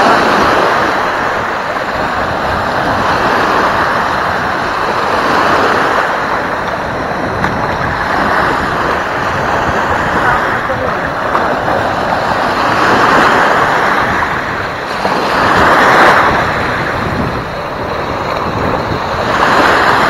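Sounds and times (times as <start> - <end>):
small waves breaking: 0.0 - 20.0
wind on microphone: 0.0 - 20.0.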